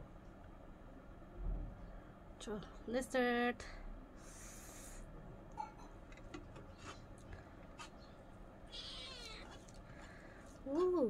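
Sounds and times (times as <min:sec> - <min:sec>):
cat meowing: 0:08.7 - 0:09.6.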